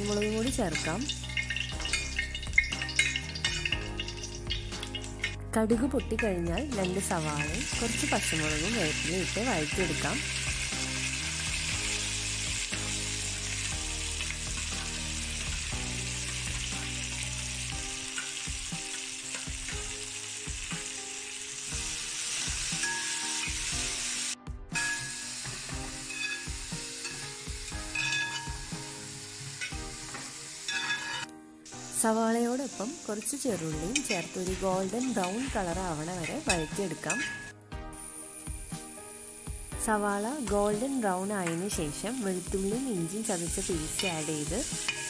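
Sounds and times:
onions sizzling in hot oil: 0.0s - 45.0s
spatula stirring in a pan: 25.9s - 28.8s, 29.5s - 31.3s, 43.5s - 45.0s.

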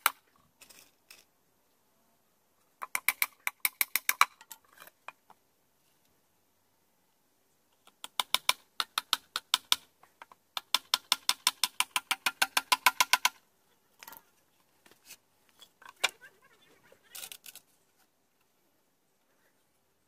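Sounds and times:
hammer tapping nails into wood: 7.9s - 9.8s, 10.6s - 13.4s.

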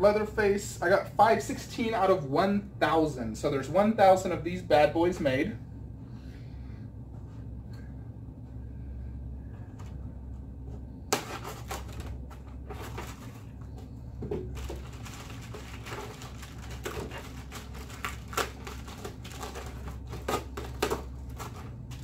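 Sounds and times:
foam pieces rubbing and scraping: 14.5s - 22.0s.

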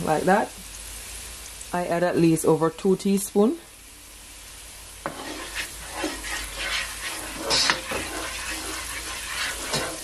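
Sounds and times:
oil sizzling: 0.0s - 10.0s
spatula scraping frying pan: 5.0s - 10.0s.

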